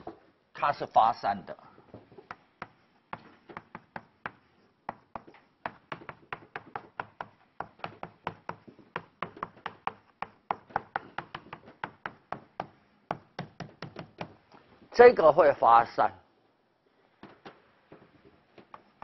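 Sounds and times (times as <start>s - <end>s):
chalk tapping on a chalkboard: 2.0s - 14.4s, 17.4s - 19.0s.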